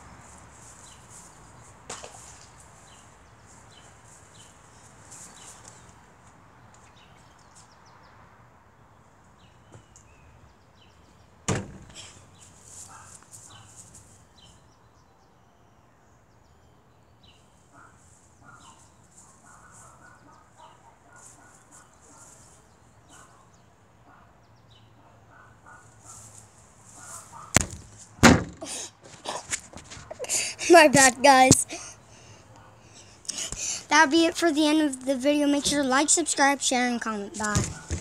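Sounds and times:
small birds chirping: 0.0 - 27.6, 31.2 - 38.0.

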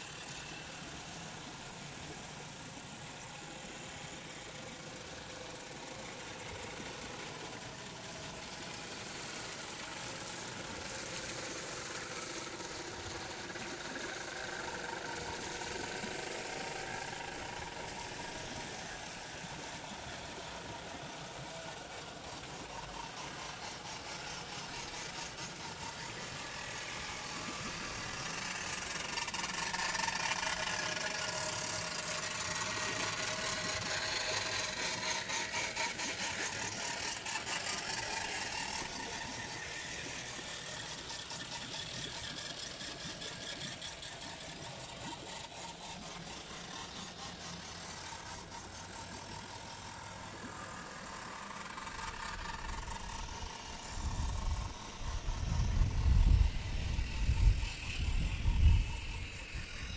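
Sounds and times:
water wheel paddles churning: 0.0 - 59.9
water rushing: 8.8 - 55.6.

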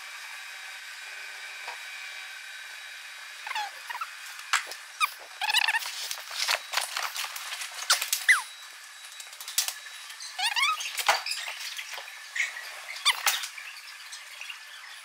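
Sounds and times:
high squeaks and chirps: 3.4 - 7.1, 7.8 - 8.6, 10.1 - 15.0.

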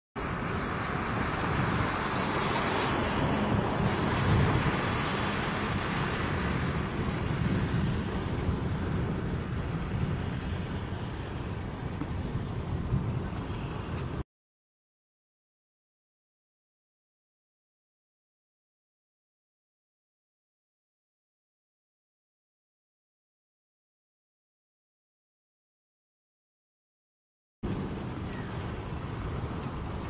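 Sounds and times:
wind buffeting microphone: 0.2 - 14.2, 27.6 - 30.0.

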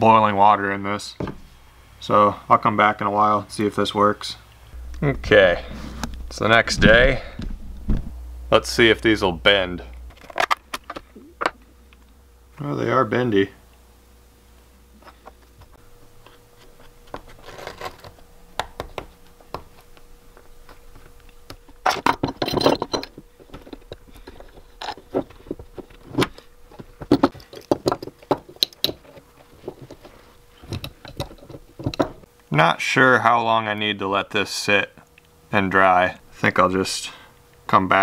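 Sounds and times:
faint steady hum: 0.0 - 38.0
wood and clamps knocking and scraping: 21.8 - 32.2.

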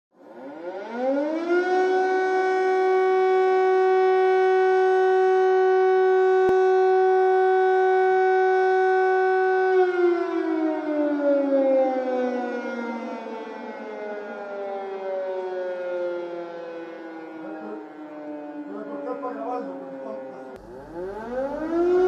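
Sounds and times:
air raid siren: 0.2 - 22.0.

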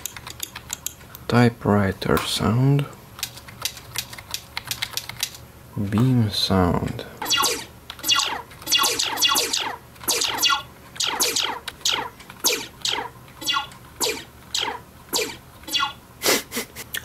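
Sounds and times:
synthesized zap: 7.2 - 16.0.

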